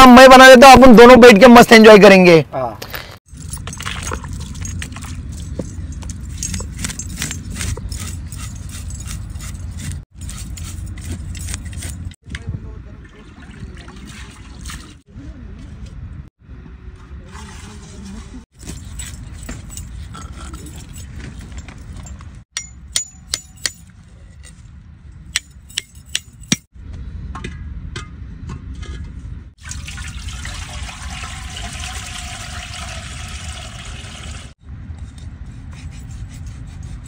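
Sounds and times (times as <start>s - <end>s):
wind rumble on microphone: 12.2s - 14.0s.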